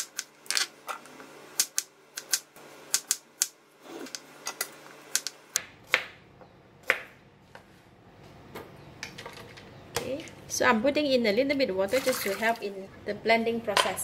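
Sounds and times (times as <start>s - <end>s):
knife chopping on plastic board: 6.8s - 7.2s.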